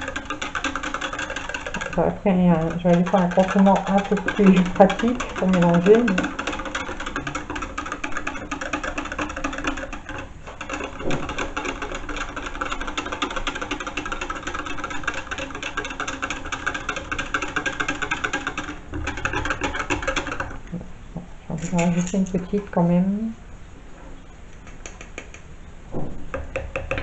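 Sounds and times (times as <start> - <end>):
wire whisk clattering in plastic jug: 0.0 - 20.6, 21.6 - 22.8.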